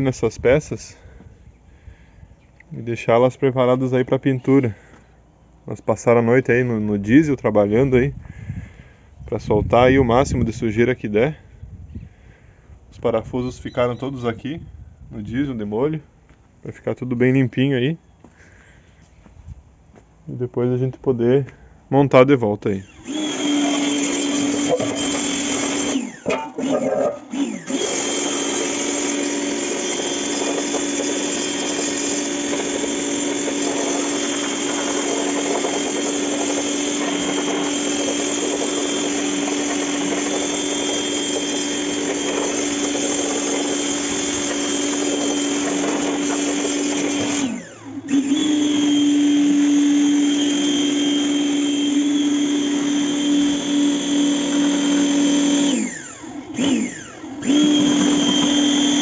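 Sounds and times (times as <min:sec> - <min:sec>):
pressure washer motor hum: 0:22.8 - 0:59.0.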